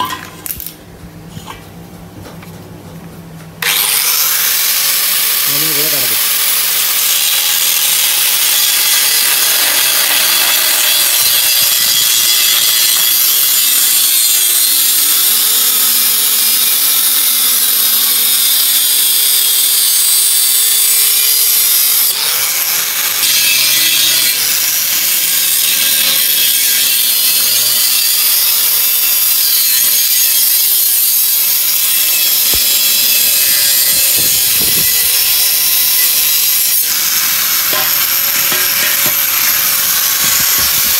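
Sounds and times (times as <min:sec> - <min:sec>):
angle grinder cutting steel: 0:03.6 - 0:40.9.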